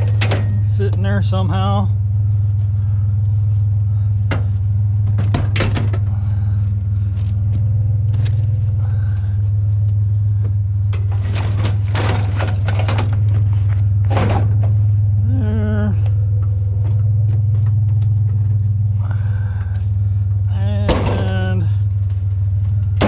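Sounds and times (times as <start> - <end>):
truck engine idling: 0.0 - 23.0
rattling: 2.0 - 15.0
metal scrap knocking and scraping: 10.9 - 13.4, 14.1 - 14.8.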